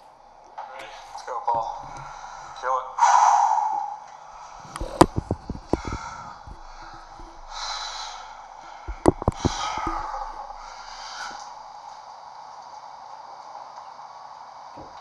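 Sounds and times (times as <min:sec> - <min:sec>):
hissing exhalations: 0:00.9 - 0:12.1.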